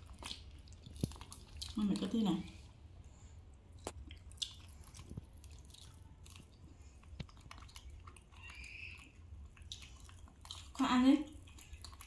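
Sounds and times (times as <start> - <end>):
chewing crispy food: 0.0 - 2.8, 3.5 - 12.0.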